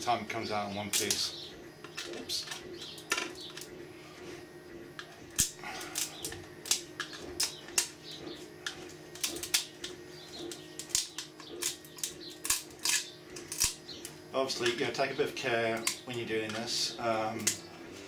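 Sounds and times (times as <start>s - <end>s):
low steady hum: 0.0s - 18.0s
plastic bits snapping: 10.5s - 13.8s.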